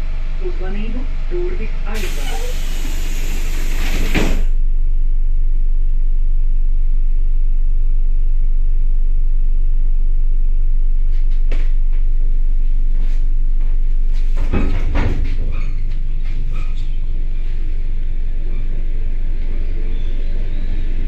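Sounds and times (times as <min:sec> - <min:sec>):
electric train rumbling: 0:00.0 - 0:04.6.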